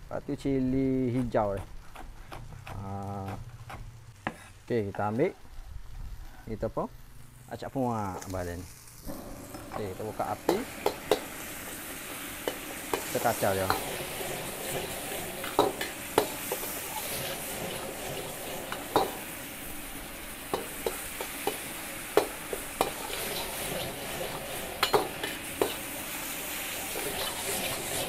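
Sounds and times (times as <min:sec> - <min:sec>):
sauce sizzling: 0:00.0 - 0:28.0
metal spatula scraping wok: 0:09.1 - 0:28.0.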